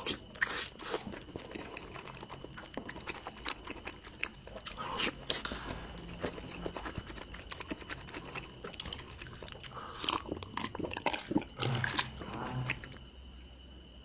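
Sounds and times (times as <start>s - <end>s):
chewing and mouth smacking: 0.0s - 13.0s
drinking from a glass: 0.0s - 13.0s.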